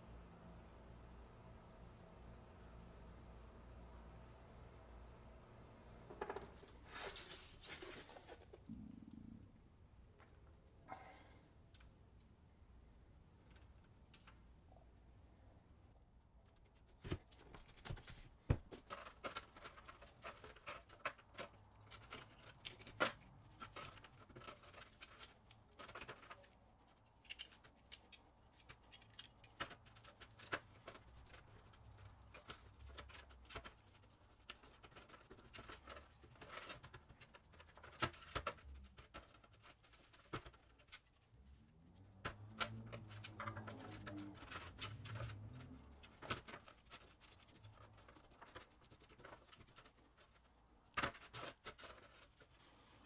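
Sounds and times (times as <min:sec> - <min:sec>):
low hum: 0:08.6 - 0:11.2.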